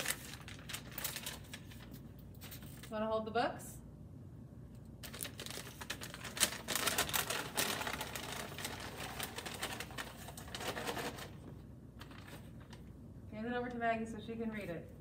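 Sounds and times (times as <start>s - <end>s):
paper slips rustling in a bag: 0.0s - 2.9s, 5.0s - 12.8s.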